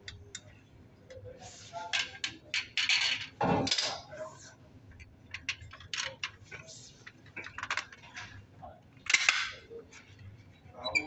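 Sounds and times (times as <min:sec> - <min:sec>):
plastic parts clicking and scraping: 0:05.3 - 0:08.4.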